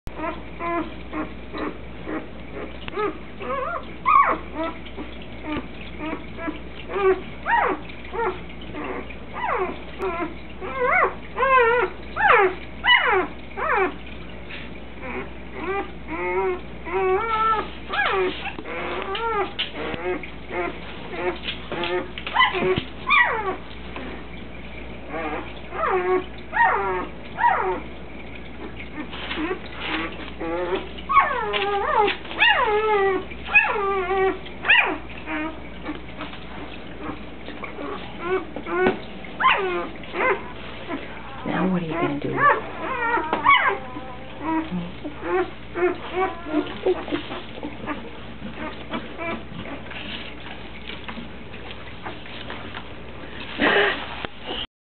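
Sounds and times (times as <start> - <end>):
puppies whining: 0.1 - 54.7.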